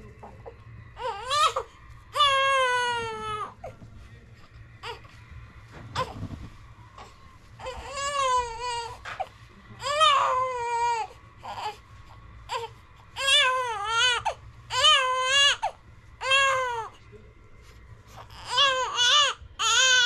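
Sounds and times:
newborn baby crying: 0:01.0 - 0:03.8, 0:04.8 - 0:05.1, 0:06.0 - 0:06.2, 0:07.0 - 0:11.8, 0:12.5 - 0:17.0, 0:18.2 - 0:20.0.

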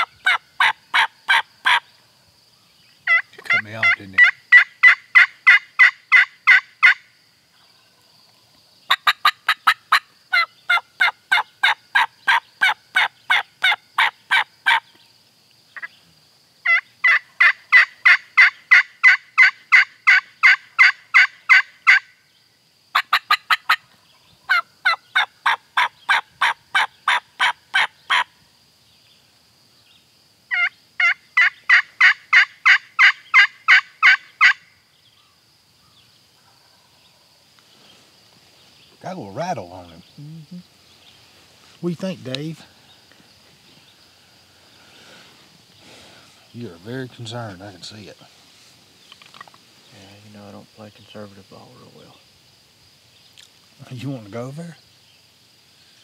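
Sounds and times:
turkey call hen yelps: 0:00.0 - 0:01.9, 0:03.1 - 0:07.1, 0:08.9 - 0:14.9, 0:16.6 - 0:22.2, 0:22.9 - 0:23.9, 0:24.5 - 0:28.4, 0:30.5 - 0:34.7.

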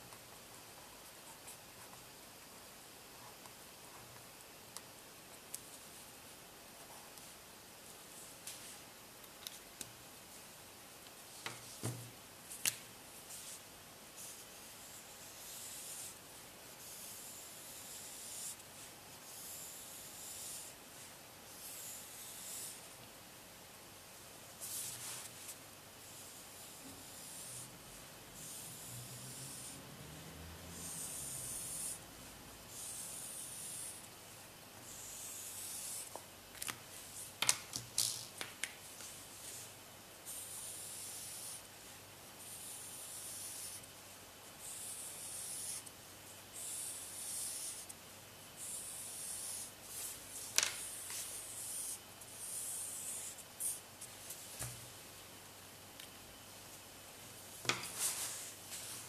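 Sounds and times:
marker rubbing on paper: 0:16.8 - 0:20.8, 0:21.5 - 0:22.8, 0:24.6 - 0:27.7, 0:46.6 - 0:47.9, 0:48.6 - 0:54.7.

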